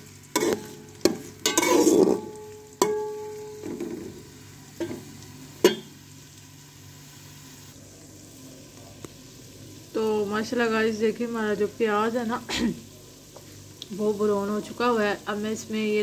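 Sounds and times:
onions sizzling: 0:00.0 - 0:16.0
spoon scraping and clinking on pot: 0:00.3 - 0:03.8.

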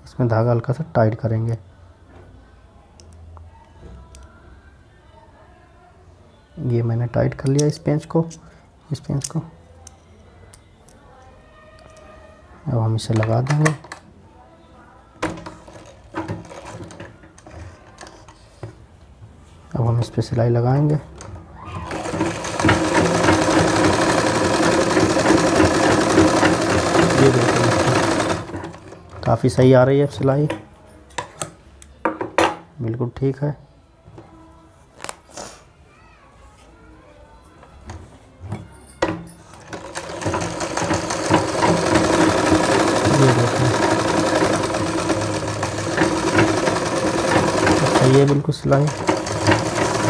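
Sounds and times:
sewing machine stitching: 0:21.8 - 0:29.4, 0:39.6 - 0:50.0.

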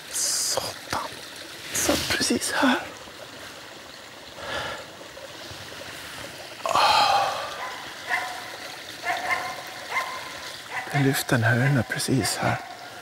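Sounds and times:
dog barking: 0:07.6 - 0:12.8.

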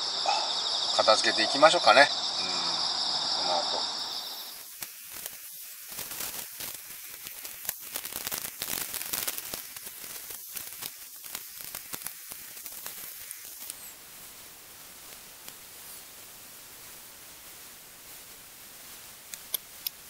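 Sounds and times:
camping gear rustling: 0:04.5 - 0:14.0.

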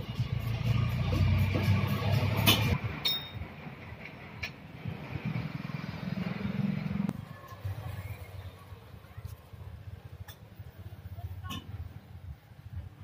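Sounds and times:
engine rumbling: 0:00.0 - 0:13.0.

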